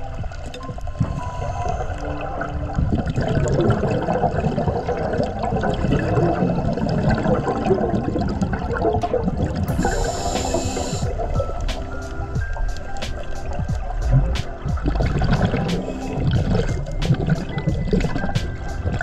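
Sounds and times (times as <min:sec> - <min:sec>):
bubbles gurgling underwater: 0:00.0 - 0:19.0.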